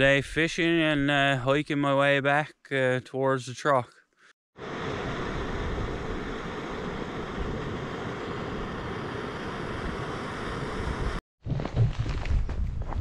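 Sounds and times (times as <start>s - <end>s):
camp stove burner hissing roar: 4.6s - 11.2s.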